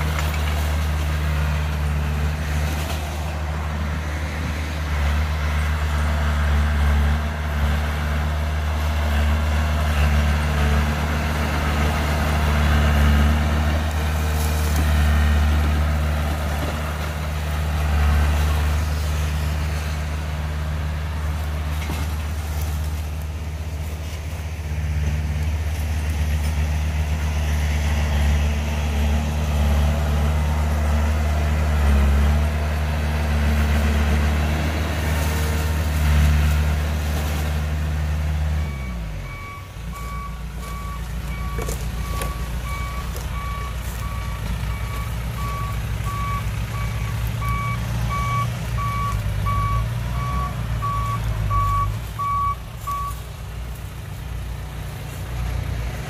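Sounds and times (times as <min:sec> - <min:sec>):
bulldozer engine rumble: 0:00.0 - 0:56.0
truck diesel engine running: 0:00.0 - 0:56.0
reversing alarm beeping: 0:38.6 - 0:53.2.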